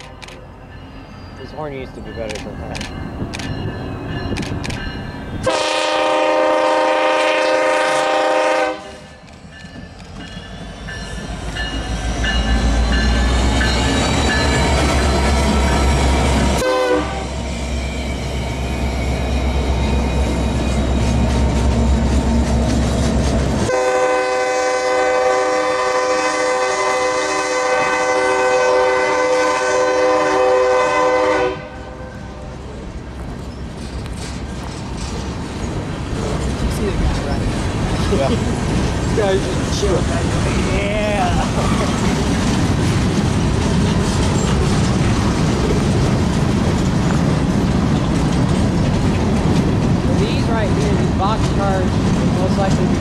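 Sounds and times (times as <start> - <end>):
locomotive engine rumble: 0.0 - 53.0
locomotive air horn: 5.4 - 9.2, 16.6 - 17.4, 23.6 - 32.4.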